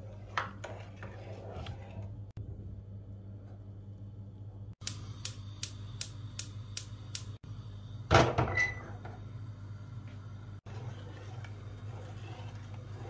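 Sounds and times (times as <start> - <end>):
gas hob igniter clicking: 4.8 - 7.4.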